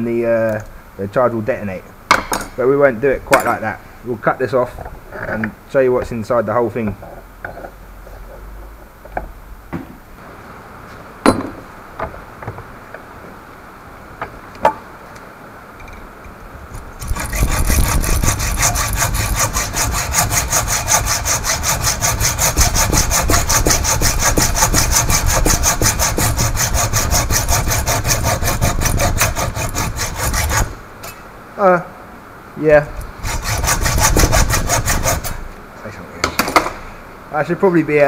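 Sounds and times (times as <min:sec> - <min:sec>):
hacksaw cutting metal: 0:16.8 - 0:31.2, 0:33.0 - 0:35.4.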